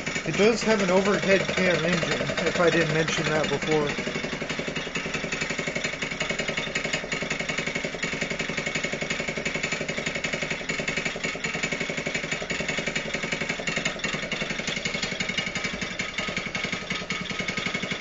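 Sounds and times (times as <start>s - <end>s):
muffler rattling: 0.0s - 18.0s
small engine idling: 0.0s - 18.0s.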